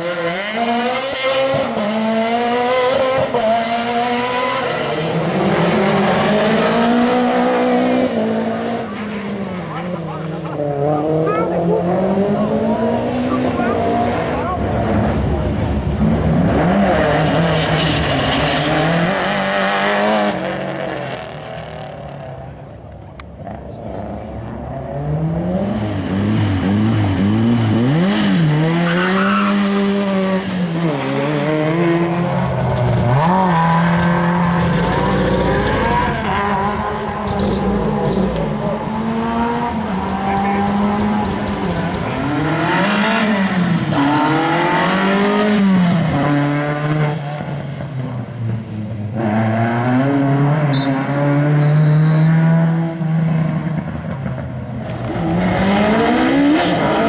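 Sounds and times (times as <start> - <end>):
rally car engines revving: 0.0 - 57.0.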